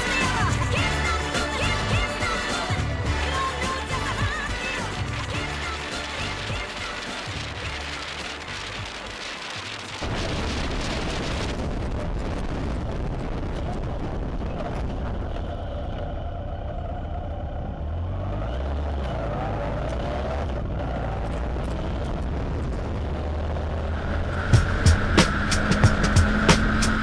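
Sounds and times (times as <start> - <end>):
motorcycle engine running: 0.0 - 18.1, 19.0 - 27.0
wind noise: 8.6 - 17.8, 20.0 - 27.0.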